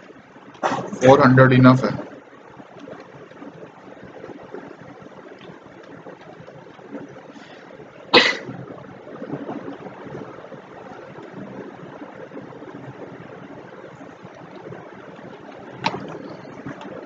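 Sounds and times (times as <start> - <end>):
steady background hiss: 0.0 - 17.0
person coughing: 8.2 - 8.5.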